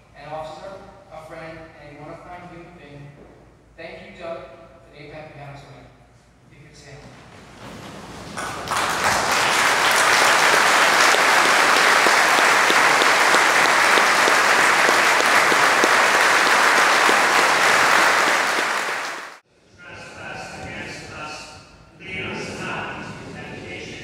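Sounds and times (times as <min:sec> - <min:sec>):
crowd applause: 0:08.3 - 0:19.4.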